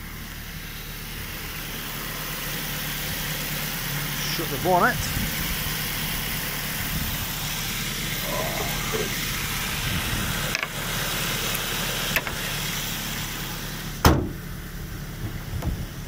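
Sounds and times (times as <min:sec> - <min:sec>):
car engine idling: 0:00.0 - 0:16.0
car bonnet slamming: 0:14.0 - 0:14.4.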